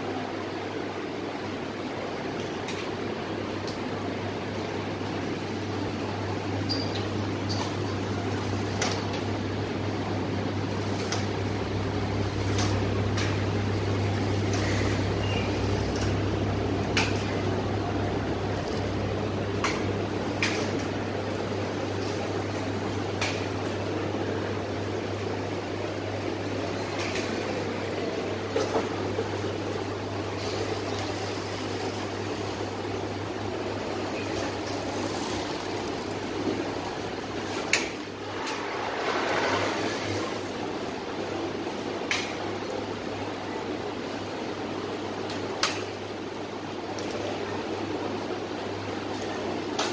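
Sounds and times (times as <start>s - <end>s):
sewing machines running: 33.7s - 37.5s.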